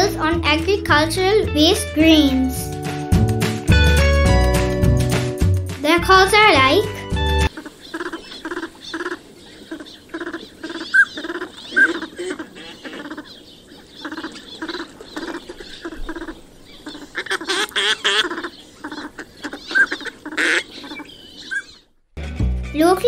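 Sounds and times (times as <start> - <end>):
ducks quacking: 6.3 - 21.8
whistled bird notes: 19.6 - 21.9.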